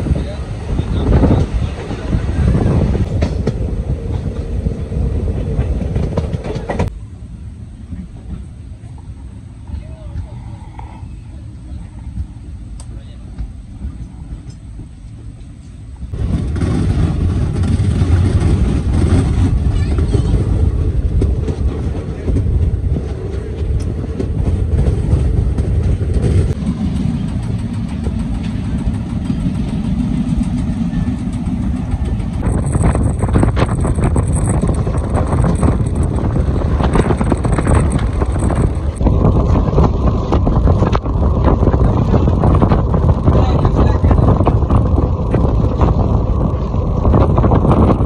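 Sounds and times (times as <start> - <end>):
track clatter: 0.0 - 7.0, 11.7 - 48.0
train wheels rumbling on rail: 0.0 - 48.0
rushing air: 20.4 - 48.0.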